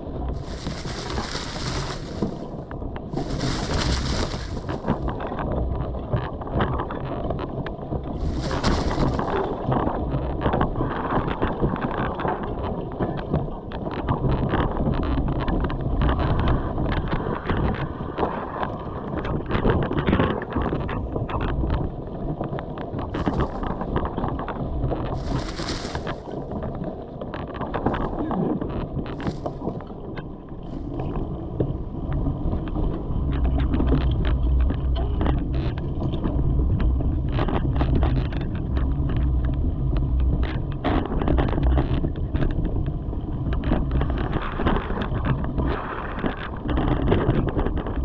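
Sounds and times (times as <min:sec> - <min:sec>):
bike tyres rumbling on dirt: 0:00.0 - 0:06.8, 0:07.8 - 0:12.0, 0:21.6 - 0:31.2
wind buffeting microphone: 0:00.0 - 0:48.0
bike rattling and clicking: 0:08.2 - 0:09.5.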